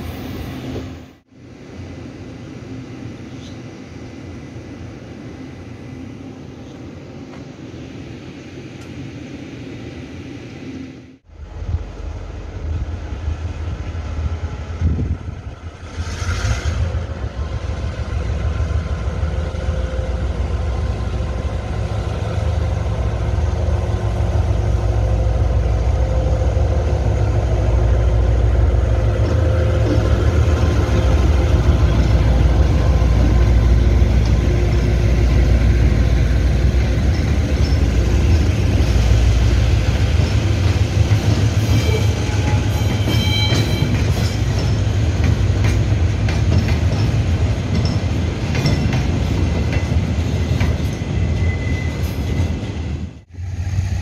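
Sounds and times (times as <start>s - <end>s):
locomotive engine rumbling: 11.2s - 54.0s.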